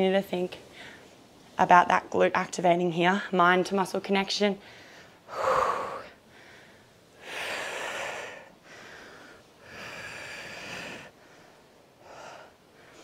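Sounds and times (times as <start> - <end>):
woman breathing hard: 4.6 - 13.0.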